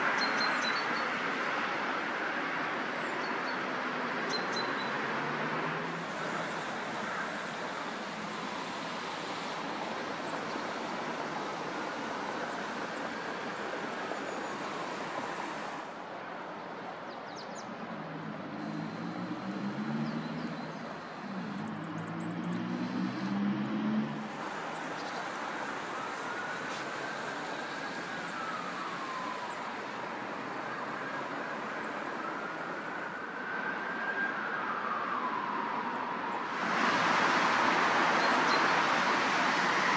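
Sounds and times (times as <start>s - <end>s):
distant road traffic hiss: 0.0s - 39.9s
siren wailing: 25.7s - 36.6s.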